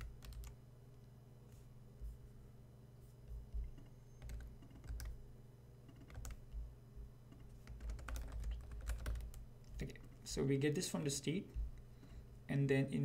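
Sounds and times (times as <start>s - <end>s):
typing on computer keyboard: 0.0s - 0.6s, 3.7s - 5.2s, 5.9s - 6.6s, 7.4s - 9.4s.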